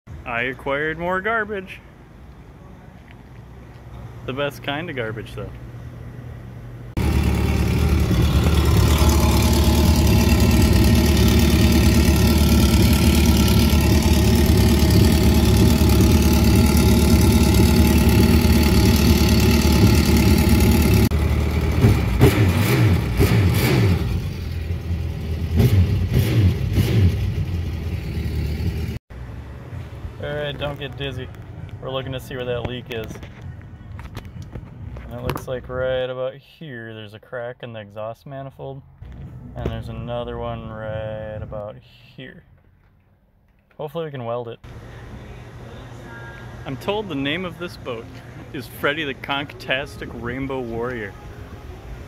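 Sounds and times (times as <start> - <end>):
jet ski engine running: 7.0 - 24.8.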